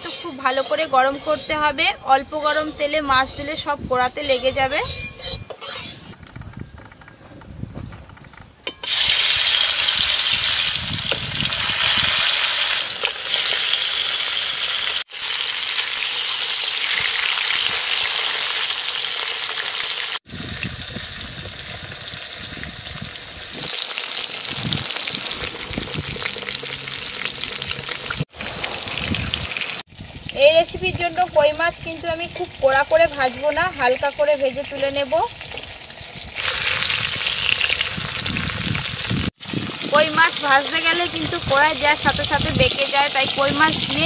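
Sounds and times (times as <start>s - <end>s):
spatula stirring in wok: 0.0s - 6.2s
fish sizzling in hot oil: 8.8s - 44.0s.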